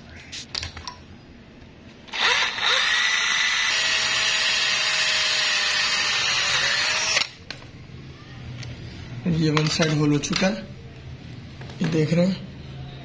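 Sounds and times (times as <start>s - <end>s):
hand drill boring metal: 2.1s - 7.3s.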